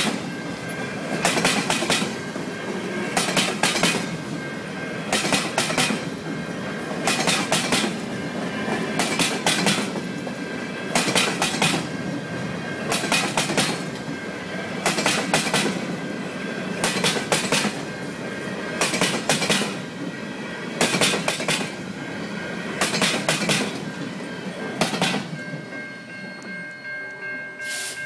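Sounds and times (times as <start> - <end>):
train rumble: 0.0 - 28.0
train wheels clacking over rail joint: 1.1 - 4.4, 5.1 - 12.2, 12.8 - 14.2, 14.8 - 15.9, 16.8 - 17.9, 18.8 - 20.1, 20.8 - 21.8, 22.8 - 24.0, 24.6 - 25.4.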